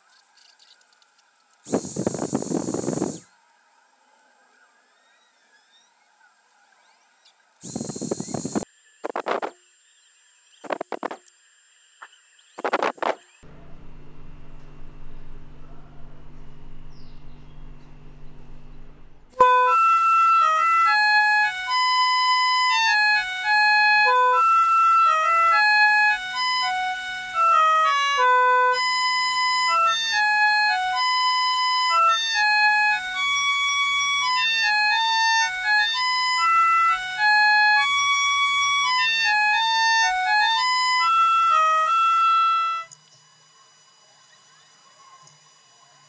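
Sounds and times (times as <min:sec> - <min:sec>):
faint room hum: 0:13.4 - 0:19.3
harmonica melody: 0:19.4 - 0:42.9.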